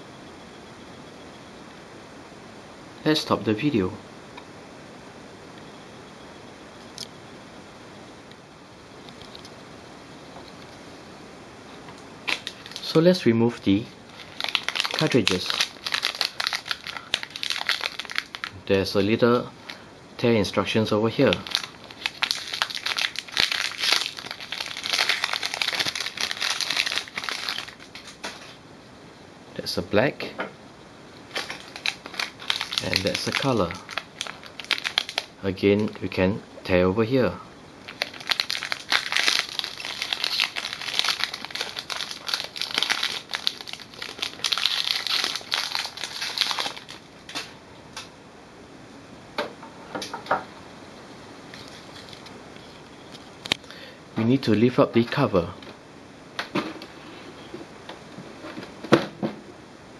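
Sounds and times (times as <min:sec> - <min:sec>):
wrapper tearing and crinkling: 0:12.2 - 0:13.2, 0:14.0 - 0:18.6, 0:21.2 - 0:28.6, 0:31.3 - 0:36.0, 0:37.8 - 0:47.5, 0:51.5 - 0:52.3.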